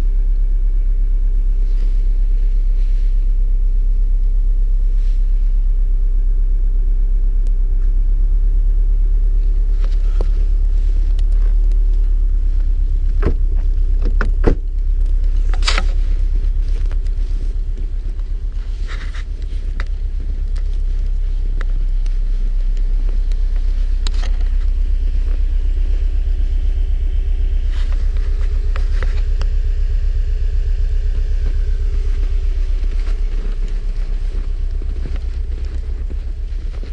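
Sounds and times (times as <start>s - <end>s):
car engine idling: 0.0s - 36.9s.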